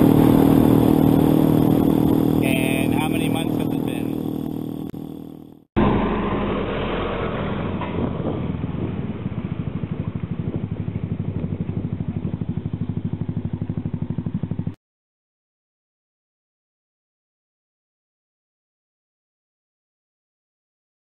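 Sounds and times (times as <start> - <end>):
scooter engine pulsing: 0.0 - 14.8.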